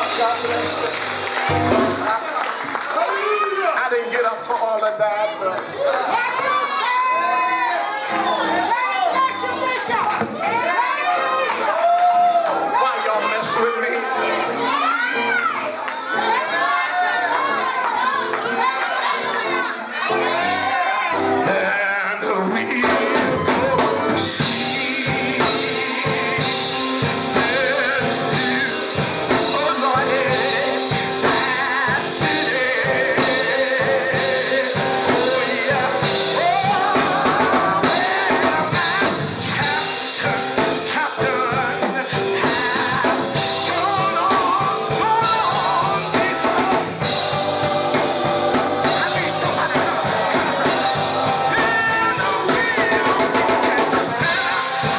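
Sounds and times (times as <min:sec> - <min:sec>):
drum kit beat: 0:00.0 - 0:02.7, 0:22.6 - 0:54.9
choir singing: 0:16.1 - 0:54.9
person singing into microphone: 0:21.4 - 0:54.9.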